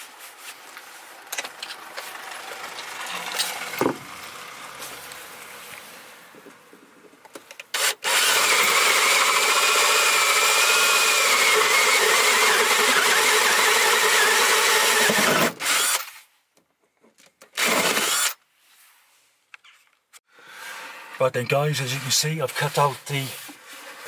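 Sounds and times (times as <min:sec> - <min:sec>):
power drill cutting wood: 0:07.7 - 0:16.1, 0:17.6 - 0:18.4.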